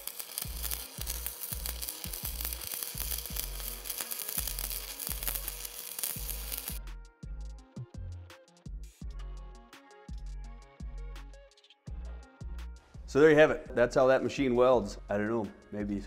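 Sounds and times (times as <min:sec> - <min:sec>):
welding arc crackling and sizzling: 0:00.0 - 0:06.8
music with bass beat: 0:06.2 - 0:13.2.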